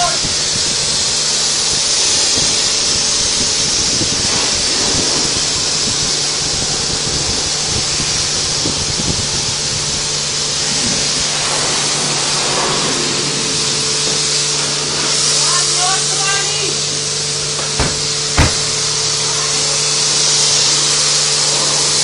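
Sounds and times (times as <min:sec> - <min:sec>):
pressure washer spraying: 0:17.8 - 0:19.2.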